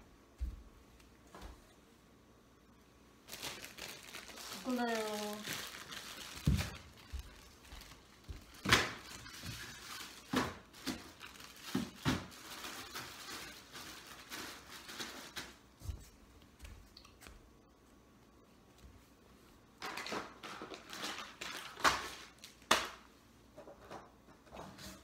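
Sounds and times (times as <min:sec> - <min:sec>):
items thudding into cardboard box: 0:10.2 - 0:12.4.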